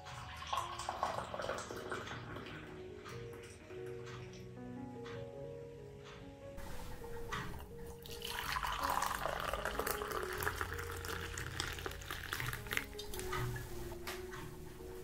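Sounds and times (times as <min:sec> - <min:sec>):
tap water running into sink: 0:00.0 - 0:02.6, 0:07.3 - 0:13.6.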